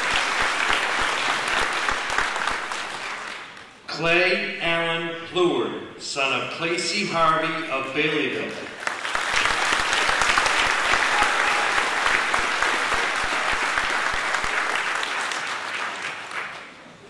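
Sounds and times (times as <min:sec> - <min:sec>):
audience applauding: 0:00.0 - 0:03.8, 0:08.6 - 0:17.0.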